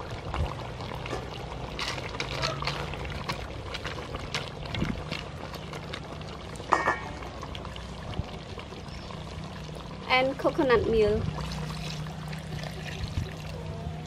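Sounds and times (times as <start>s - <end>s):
sharp ringing knock on pot: 6.7s - 7.2s.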